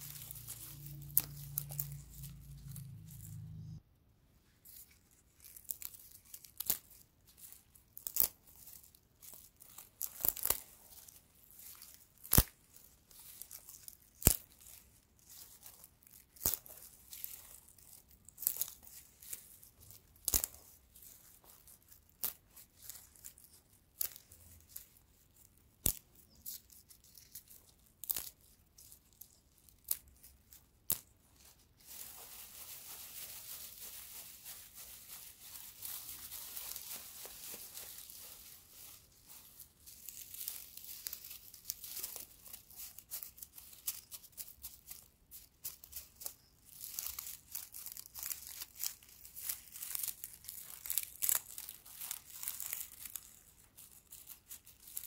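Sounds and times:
dry straw snapping: 0.0 - 3.4, 5.4 - 7.0, 8.0 - 10.8, 11.6 - 12.8, 13.4 - 14.8, 15.7 - 19.4, 20.2 - 20.6, 25.8 - 28.4, 30.8 - 31.1, 31.9 - 45.0, 46.8 - 53.3
straw rustling: 0.0 - 3.8, 4.4 - 55.0.

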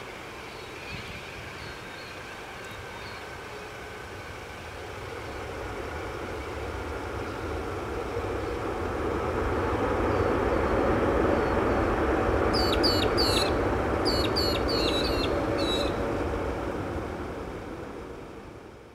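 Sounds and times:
jet engines roaring: 3.4 - 18.9
small bird chirping: 12.6 - 16.0.

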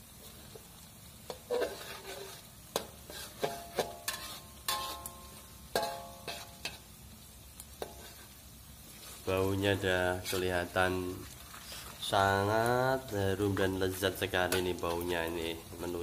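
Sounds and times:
food sizzling in oil: 0.0 - 16.0
metal ladle clanking on wok: 2.7 - 6.8.

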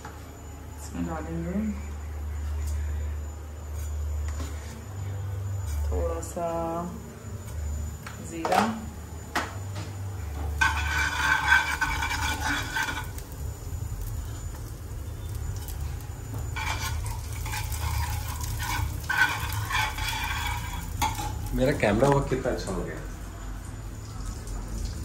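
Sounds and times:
low steady hum: 0.0 - 25.0
metal spoon scraping frying pan: 10.6 - 13.3, 16.6 - 21.5.

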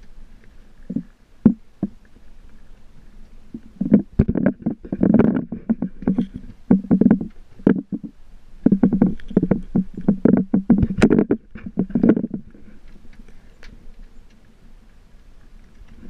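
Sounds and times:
water slapping boat hull: 3.4 - 13.3.

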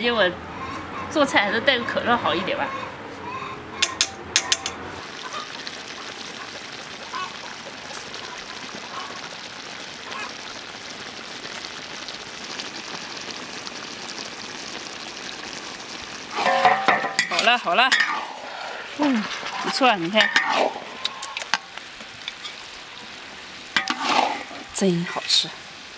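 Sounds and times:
utensil clinking against wok: 3.8 - 4.8, 16.4 - 18.3, 23.8 - 24.5
food bubbling in wok: 4.3 - 25.9.

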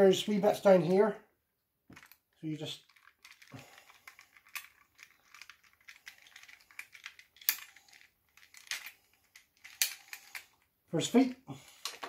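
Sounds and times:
plastic toy parts clicking: 1.9 - 10.6.

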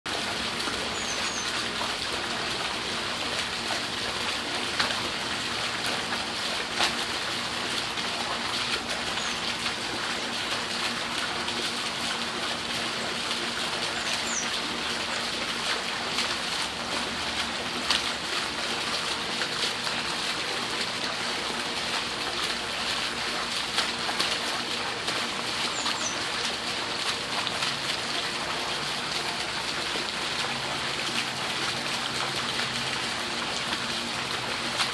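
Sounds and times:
water trickling and splashing: 0.1 - 34.9.

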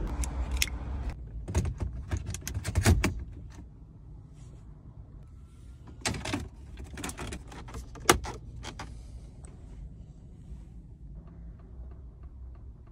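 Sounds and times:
low steady rumble: 3.1 - 12.9.

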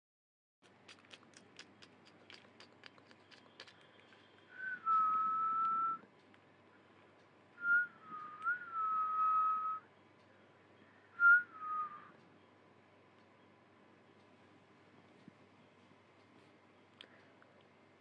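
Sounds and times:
whistled notes: 4.5 - 6.0, 7.6 - 9.9, 11.2 - 12.2.

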